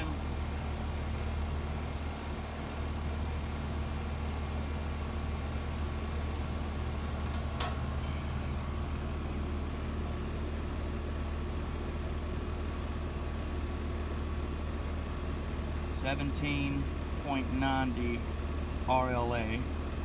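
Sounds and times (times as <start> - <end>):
air conditioner compressor humming: 0.0 - 20.0.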